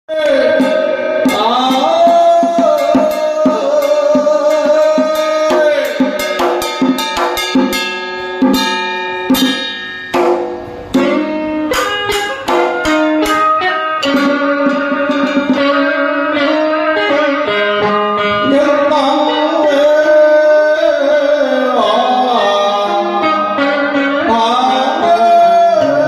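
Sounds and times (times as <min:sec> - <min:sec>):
drum beats: 0:00.1 - 0:20.6
plucked strings: 0:00.1 - 0:26.0
wavering held melody: 0:00.6 - 0:26.0.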